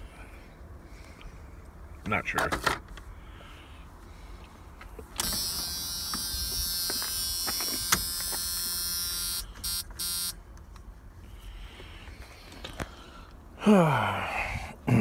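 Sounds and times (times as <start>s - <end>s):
electric buzz: 5.2s - 10.4s.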